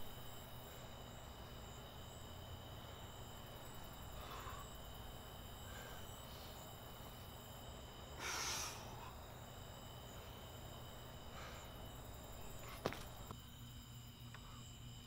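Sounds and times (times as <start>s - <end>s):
man breathing out forcefully: 4.0s - 5.0s, 5.6s - 6.7s, 8.2s - 9.4s.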